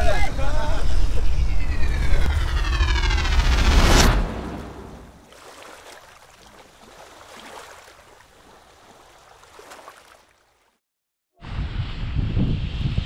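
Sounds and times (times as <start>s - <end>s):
loud sound: 0.6s - 5.2s
sea surf with small splashes: 5.2s - 10.8s.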